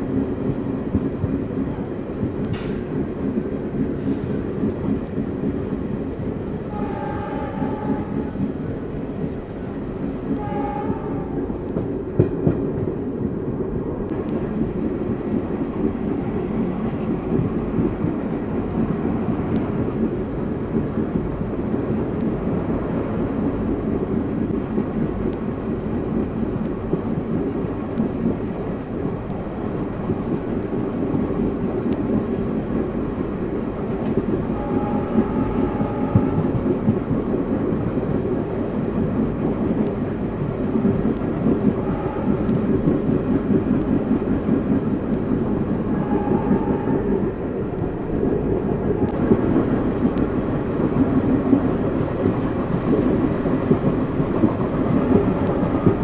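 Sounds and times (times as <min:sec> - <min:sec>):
diesel locomotive rumble: 0:00.0 - 0:56.0
train wheels on rails: 0:00.0 - 0:56.0
train horn blasts: 0:06.7 - 0:08.4, 0:10.4 - 0:11.4, 0:34.5 - 0:36.6, 0:41.8 - 0:42.6, 0:45.9 - 0:47.2.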